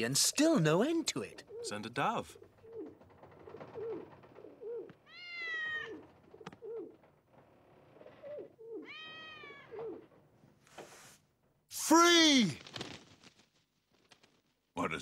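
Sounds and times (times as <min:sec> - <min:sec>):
dove cooing: 0:01.3 - 0:07.2, 0:07.8 - 0:10.2
cat meowing: 0:05.0 - 0:06.0, 0:08.8 - 0:09.8.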